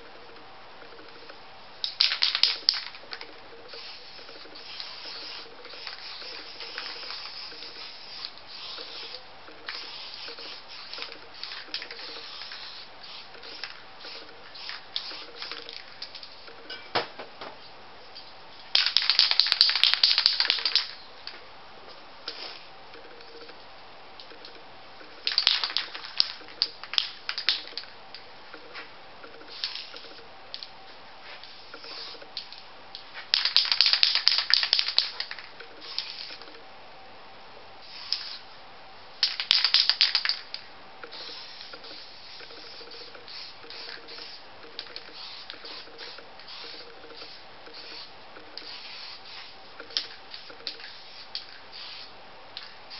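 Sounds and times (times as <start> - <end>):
spray paint can spraying: 1.8 - 16.4, 18.7 - 21.0, 22.3 - 22.7, 25.2 - 27.9, 29.5 - 30.7, 31.3 - 32.5, 33.2 - 36.5, 37.8 - 38.4, 39.2 - 52.9.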